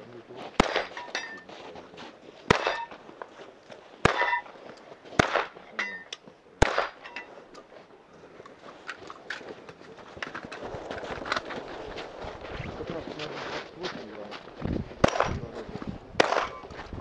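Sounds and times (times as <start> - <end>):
shotgun shots: 0.6 - 1.0, 2.5 - 3.0, 4.0 - 5.7, 6.6 - 7.1, 15.0 - 15.5, 16.2 - 16.7
metallic ring of steel target: 0.7 - 1.4, 4.1 - 4.5, 5.8 - 6.2.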